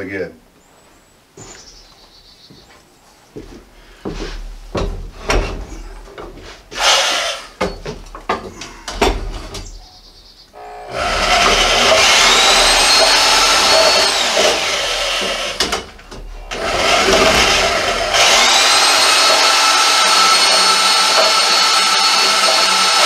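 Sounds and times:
power saw cutting steel: 6.7 - 7.6, 10.6 - 23.0.

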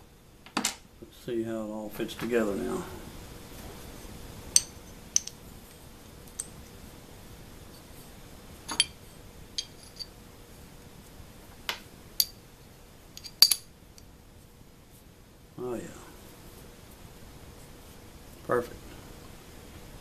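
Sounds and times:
metal parts clinking together: 13.2 - 13.7.

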